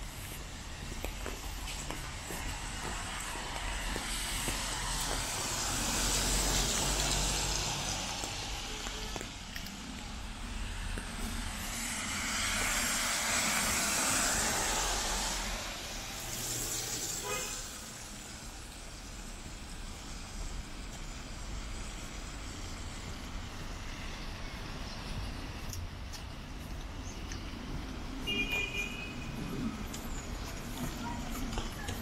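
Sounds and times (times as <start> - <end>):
tyres hissing on wet road: 0.0 - 25.9
low traffic rumble: 0.0 - 32.0.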